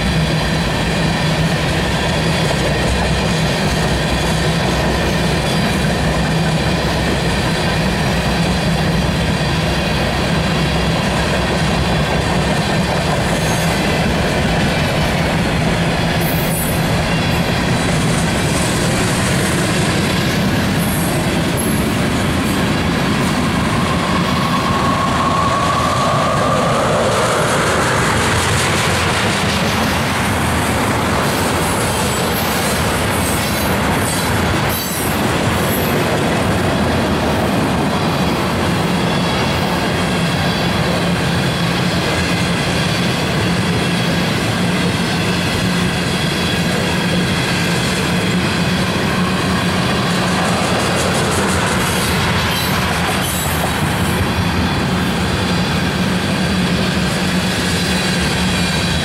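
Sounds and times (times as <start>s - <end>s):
freight cars rumbling on steel wheels: 0.0s - 59.0s.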